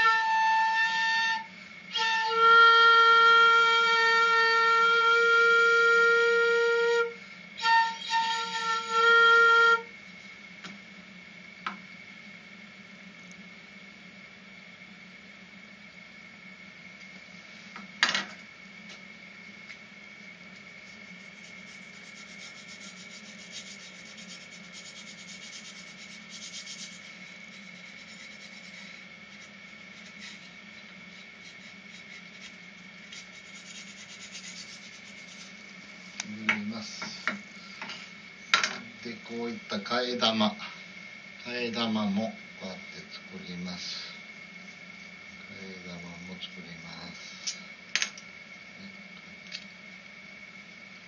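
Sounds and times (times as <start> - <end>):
steady high whine: 0.0 - 51.0
low hum: 18.4 - 39.4
faint scraping and rubbing: 20.8 - 35.6.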